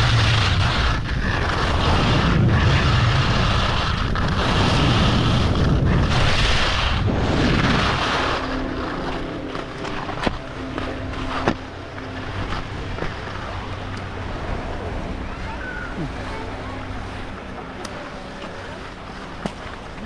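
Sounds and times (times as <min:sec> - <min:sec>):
skis sliding over snow: 0:00.0 - 0:13.5
wind buffeting microphone: 0:00.0 - 0:18.0.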